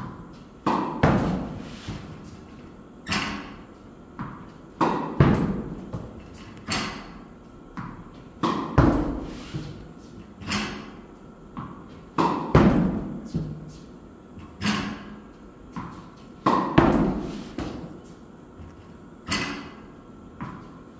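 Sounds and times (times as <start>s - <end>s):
tennis racket striking balls: 0.0s - 18.2s, 19.2s - 20.8s
tennis ball bouncing: 0.6s - 2.1s, 4.2s - 7.2s, 7.8s - 9.7s, 11.6s - 13.6s, 15.7s - 18.1s, 19.3s - 20.8s.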